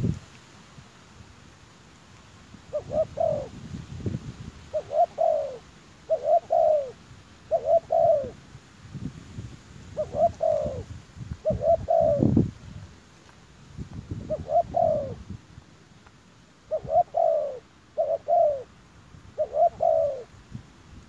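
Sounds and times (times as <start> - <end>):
dove cooing: 2.7 - 3.7, 4.7 - 8.4, 9.9 - 12.4, 14.1 - 15.3, 16.7 - 18.7, 19.3 - 20.4.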